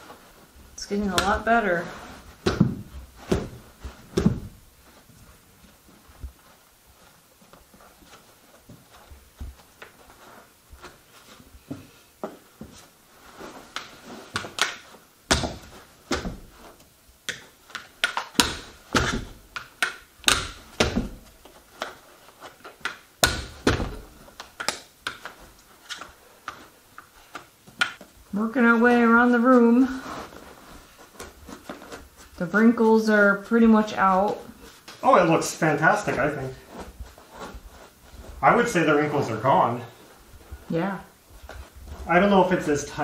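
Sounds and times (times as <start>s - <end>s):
carpet knee kicker thumps: 2.4s - 4.7s, 15.3s - 16.6s, 20.2s - 21.4s, 23.2s - 24.2s.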